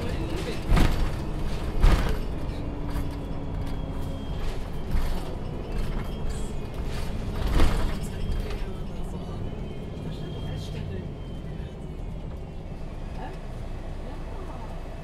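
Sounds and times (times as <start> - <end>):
bus panels creaking and rattling: 0.0 - 9.4.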